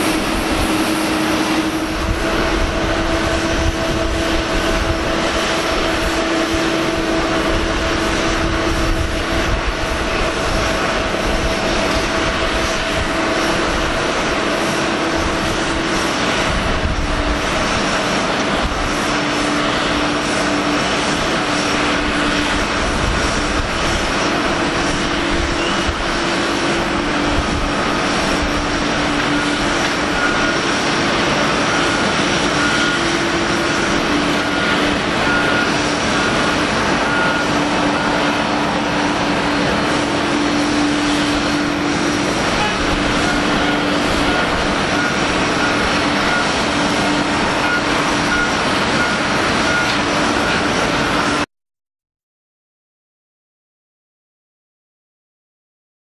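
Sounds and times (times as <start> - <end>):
airport hum: 0.0 - 51.4
jet engine noise: 0.0 - 51.5.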